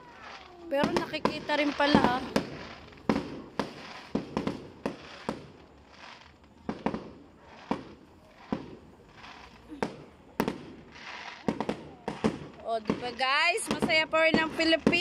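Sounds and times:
crackling hiss: 0.0 - 15.0
fireworks bangs: 0.0 - 15.0.

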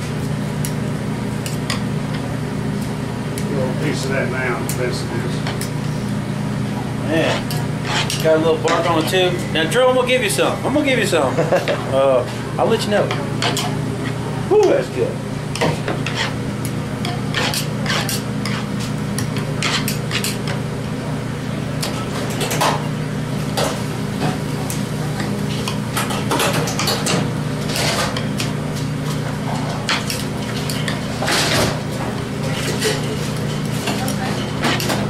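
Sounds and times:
steady low hum: 0.0 - 35.0
utensils clinking against metal pans: 7.2 - 9.4, 12.6 - 13.8, 32.4 - 35.0.

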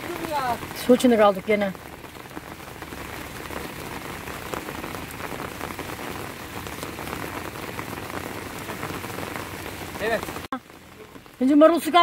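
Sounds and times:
heavy rain falling: 0.0 - 12.0.

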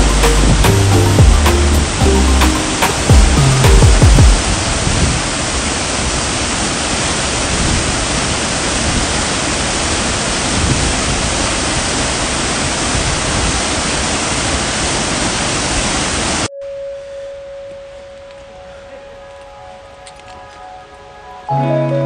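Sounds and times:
stream water rushing: 0.0 - 16.5.

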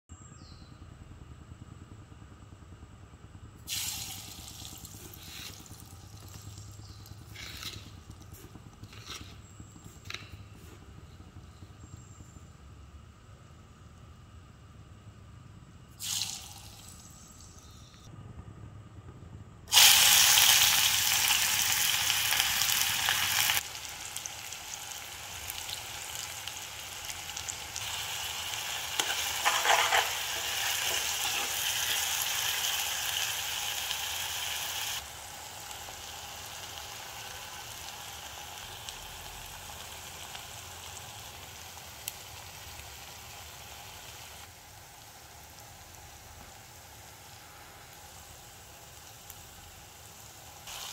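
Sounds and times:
food sizzling in wok: 3.7 - 10.2, 16.0 - 17.9, 19.7 - 50.9
spatula stirring pan: 28.8 - 32.6.

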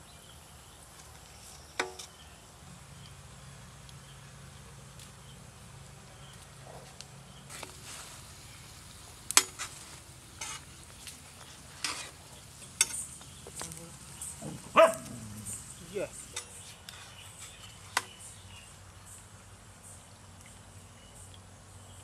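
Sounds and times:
faint sizzle of frying: 0.0 - 19.4
utensils knocking and scraping pan: 11.7 - 13.2.

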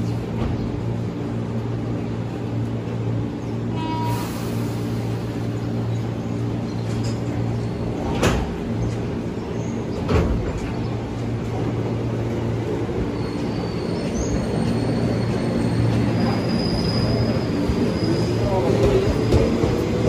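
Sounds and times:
train equipment humming: 0.0 - 20.0.

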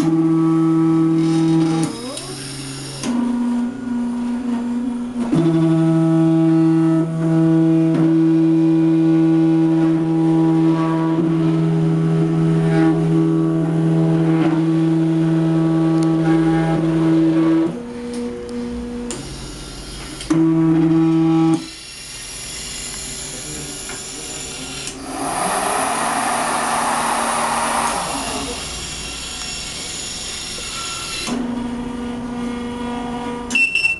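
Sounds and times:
stepper motors whining: 19.1 - 31.5.

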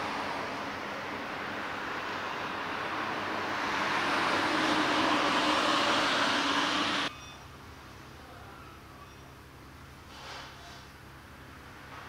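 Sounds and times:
vehicle passing: 0.0 - 7.1.

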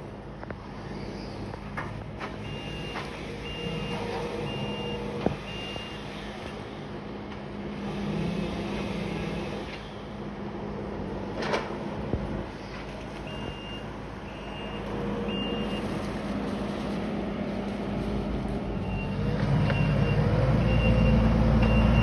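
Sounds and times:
loader engine running: 1.8 - 22.0
reversing alarm beeping: 2.4 - 6.2, 13.3 - 16.1, 18.7 - 22.0.

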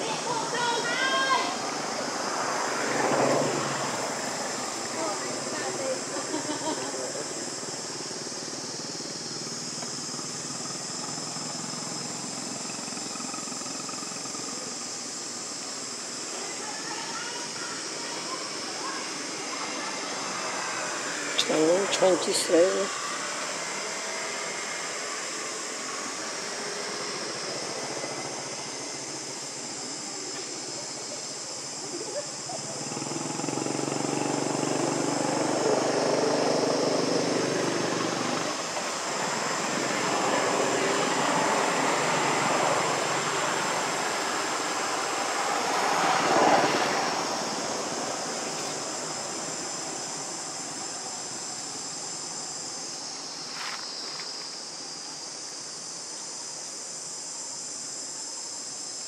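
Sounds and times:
high buzz of insects: 0.0 - 59.0
passing engine drone: 32.6 - 50.8.

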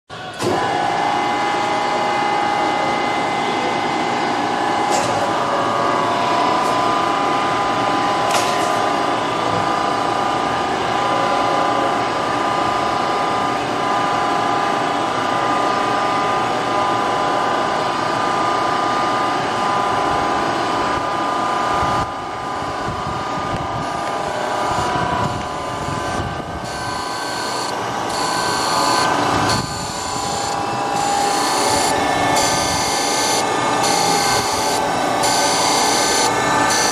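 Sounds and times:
surface grinder motor whine: 19.7 - 36.9
grinding wheel cutting steel: 23.8 - 36.9.

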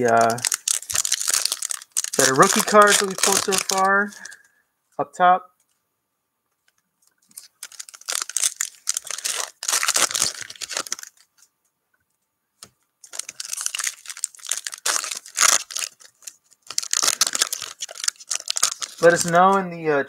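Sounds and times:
card pack wrappers crinkling: 0.0 - 4.4, 7.2 - 11.4, 13.0 - 19.7.

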